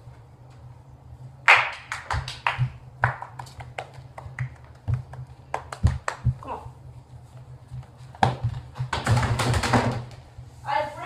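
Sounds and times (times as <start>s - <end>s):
footsteps on hard floor: 7.2s - 9.3s.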